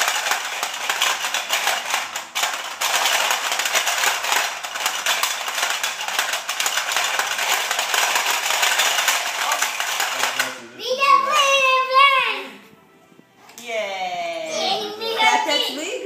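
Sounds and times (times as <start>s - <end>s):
plastic game pieces clattering: 0.0s - 10.6s.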